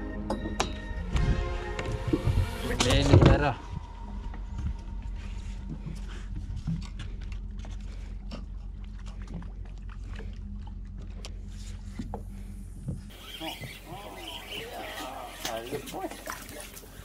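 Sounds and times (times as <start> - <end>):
boat engine idling: 3.9 - 17.0.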